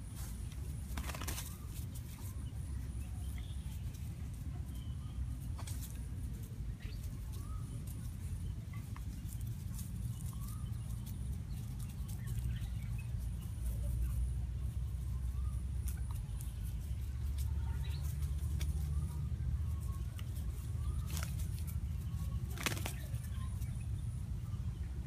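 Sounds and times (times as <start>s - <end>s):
steady low rumble: 0.0s - 25.0s
chickens calling: 15.0s - 25.0s.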